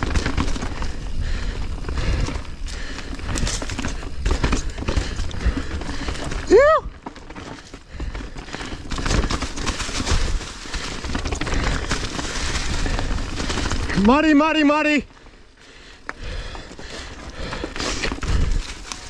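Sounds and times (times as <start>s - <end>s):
bike knocks and rattles: 0.0s - 14.4s
bike tyre noise: 0.0s - 19.0s.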